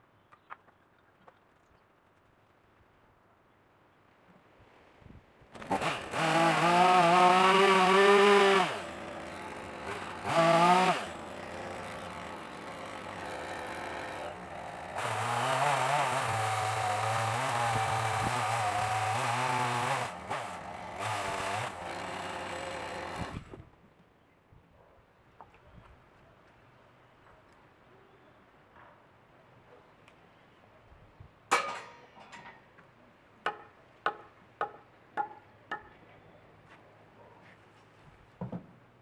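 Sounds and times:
chainsaw revving and idling: 0:05.6 - 0:23.4
chainsaw cutting wood: 0:05.6 - 0:23.6.

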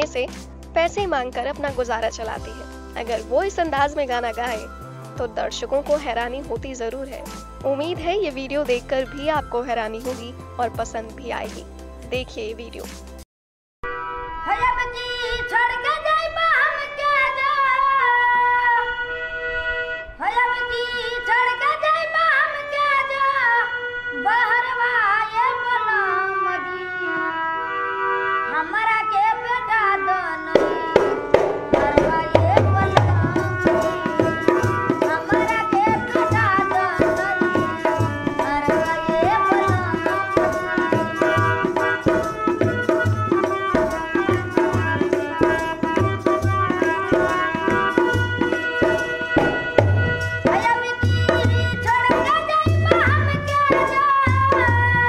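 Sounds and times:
woman singing: 0:00.0 - 0:11.6, 0:31.8 - 0:49.8, 0:50.4 - 0:55.0
harmonium chords: 0:13.8 - 0:15.3, 0:22.0 - 0:54.5
hand drum beat: 0:30.6 - 0:55.0.

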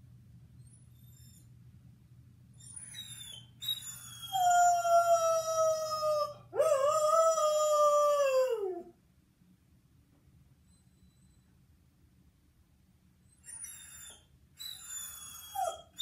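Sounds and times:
dog howling: 0:02.9 - 0:08.9.

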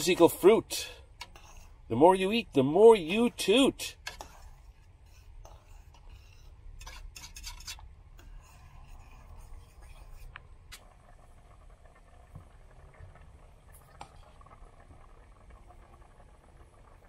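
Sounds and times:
spoon stirring soup in pot: 0:00.0 - 0:11.0
faint low hum: 0:00.0 - 0:17.0.

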